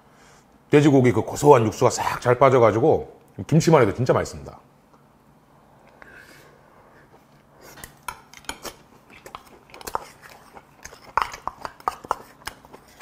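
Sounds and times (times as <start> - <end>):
close-up chewing: 7.2 - 13.0.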